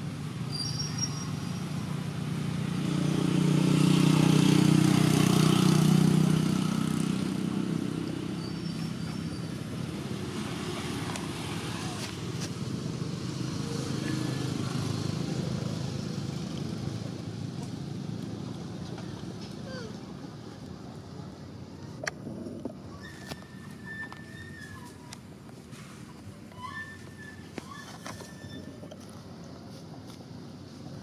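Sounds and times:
vehicle engine passing: 2.2s - 9.0s.

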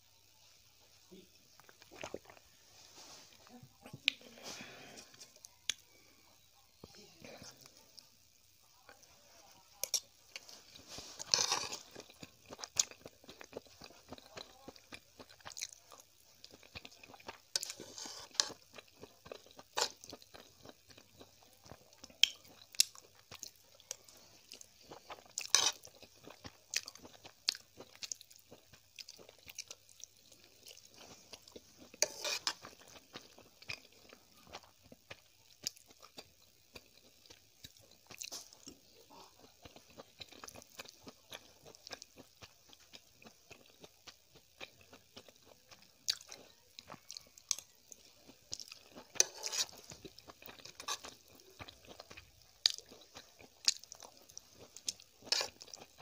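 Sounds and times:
chewing noodles mouth clicks: 22.1s - 23.5s.

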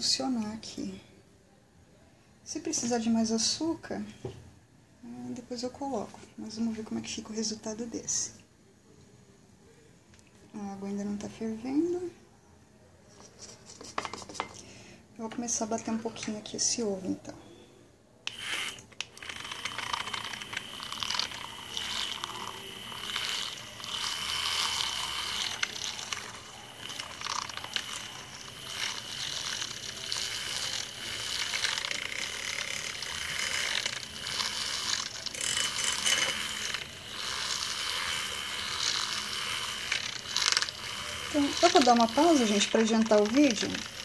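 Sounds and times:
milk frother whining and rattling: 13.2s - 14.6s, 18.3s - 44.0s.

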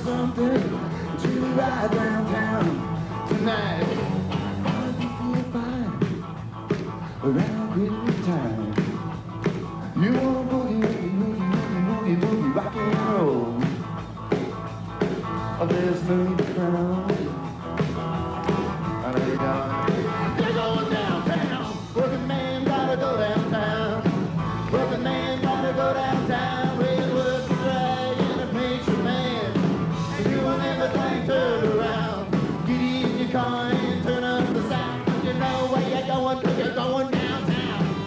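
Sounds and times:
lead singer singing: 0.0s - 6.2s, 7.2s - 8.9s, 9.9s - 13.8s, 15.6s - 17.4s, 19.0s - 38.0s
electric guitars: 0.0s - 38.0s
live rock band playing: 0.0s - 38.0s.

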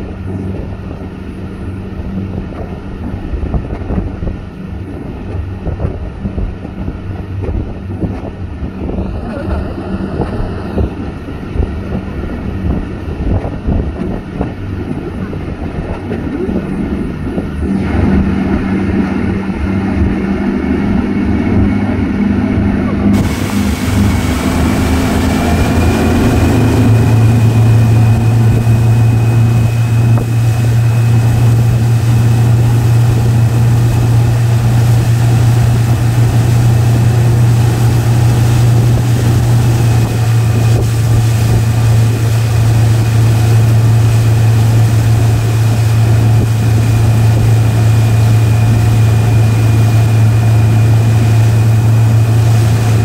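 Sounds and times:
motorboat engine drone: 0.0s - 53.0s
rushing noise: 17.4s - 53.0s.

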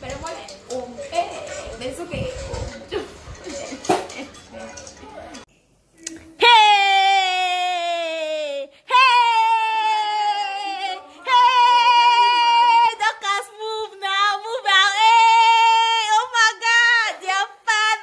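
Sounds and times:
woman singing unaccompanied: 8.9s - 18.0s.

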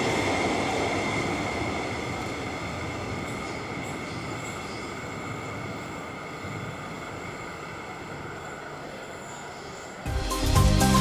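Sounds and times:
electric train wheels rumbling: 0.0s - 11.0s.

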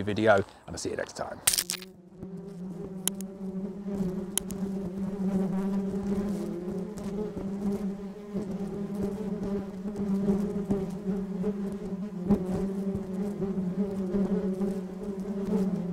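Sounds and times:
honeybees buzzing: 1.3s - 15.9s
light ticks: 4.4s - 4.6s.

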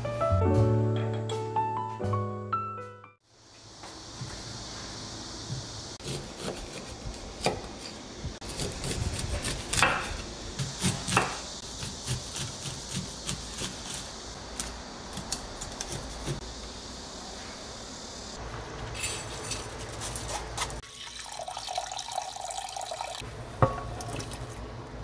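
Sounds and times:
knife slicing corn kernels: 6.0s - 16.4s.

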